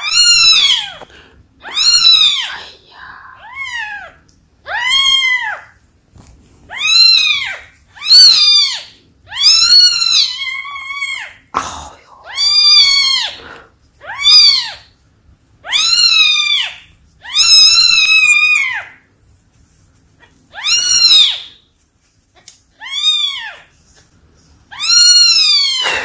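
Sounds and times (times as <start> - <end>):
kitten crying: 0.0 - 5.8, 6.7 - 11.4, 12.2 - 14.9, 15.6 - 19.0, 20.5 - 21.6, 22.8 - 23.6, 24.7 - 26.0.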